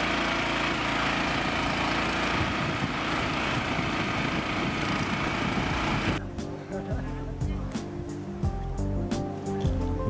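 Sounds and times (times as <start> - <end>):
motorboat engine running: 0.0 - 7.8
wind: 0.0 - 10.0.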